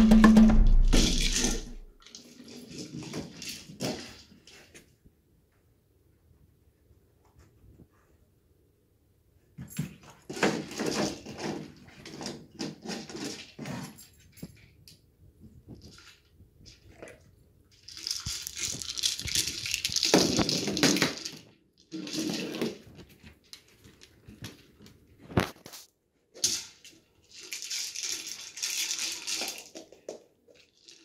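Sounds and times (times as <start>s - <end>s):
sharp knocks: 0.0s - 1.8s
plastic ball rolling with treats rattling: 0.0s - 4.8s, 10.0s - 14.7s, 15.7s - 25.8s, 26.4s - 31.0s.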